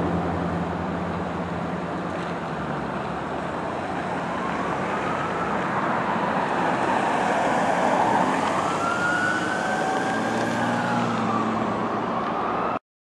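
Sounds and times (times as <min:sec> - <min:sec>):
road traffic noise: 0:00.0 - 0:12.8
emergency sirens wailing: 0:03.3 - 0:12.8.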